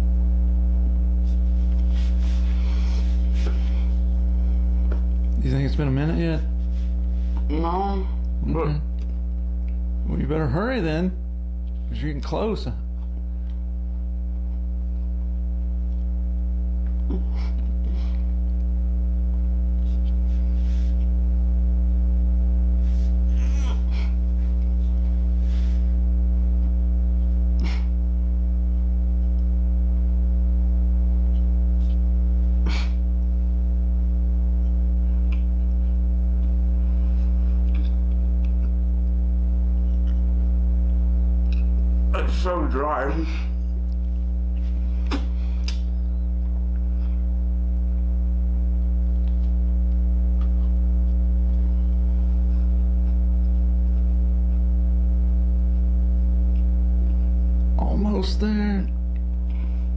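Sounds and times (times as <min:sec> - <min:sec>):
low electrical hum: 0:00.0 - 0:59.9
person chewing crunchy food: 0:34.6 - 0:39.0, 0:39.7 - 0:41.9, 0:50.3 - 0:54.8, 0:56.4 - 0:57.7.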